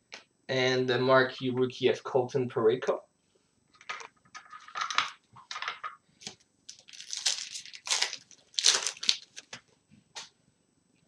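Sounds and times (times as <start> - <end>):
foil wrapper crinkling and tearing: 6.7 - 9.6.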